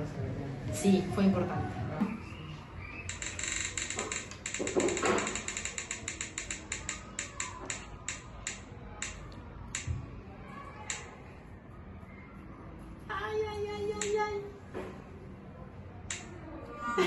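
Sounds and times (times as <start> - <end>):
spinning wheel clicks from phone: 3.1 - 9.9.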